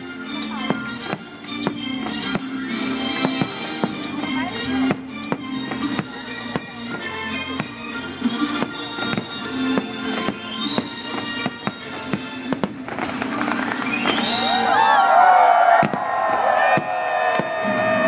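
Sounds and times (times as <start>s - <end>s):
firework bangs: 8.6s - 14.5s, 15.7s - 18.0s
crowd cheering: 13.3s - 18.0s.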